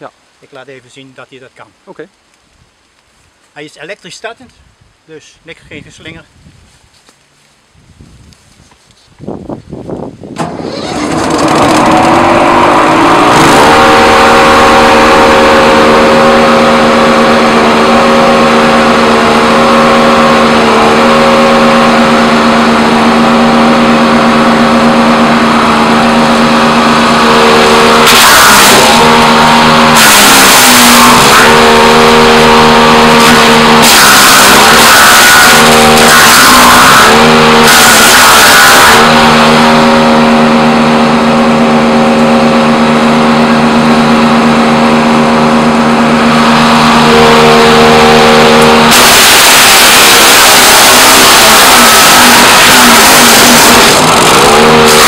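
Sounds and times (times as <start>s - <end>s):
wood chipper engine running: 10.4s - 55.0s.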